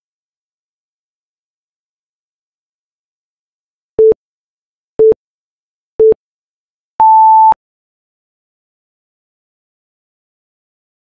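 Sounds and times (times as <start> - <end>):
longer higher beep: 7.0 - 7.6
short timer beeps: 7.0 - 7.6.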